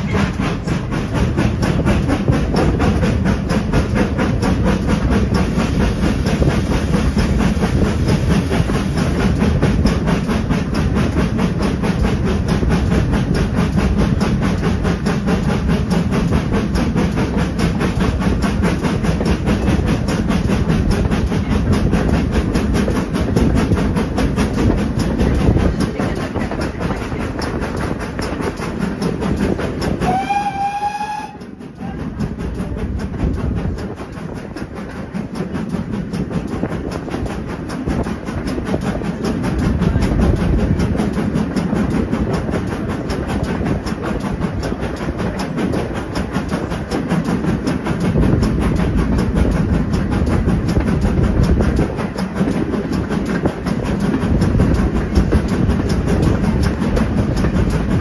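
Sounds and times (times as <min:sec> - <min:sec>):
train wheels clattering on rails: 0:00.0 - 0:58.0
steam locomotive whistle: 0:30.0 - 0:31.6.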